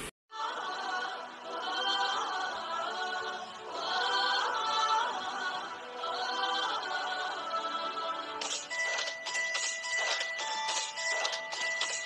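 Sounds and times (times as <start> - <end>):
chorus singing a song: 0.3 - 9.0.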